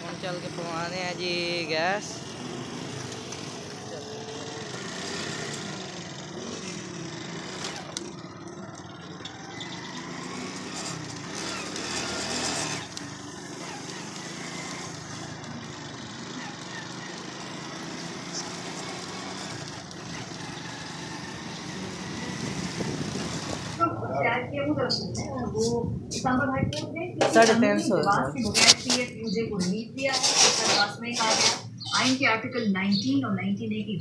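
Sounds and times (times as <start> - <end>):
motorcycle engine running: 0.0 - 25.6
road noise: 0.0 - 34.0.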